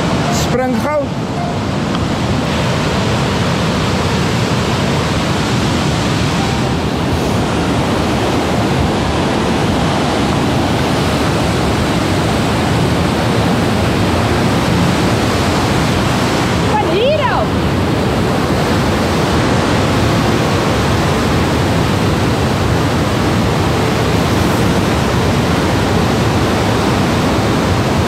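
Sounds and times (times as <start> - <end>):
whitewater river rushing over boulders: 0.0 - 28.0.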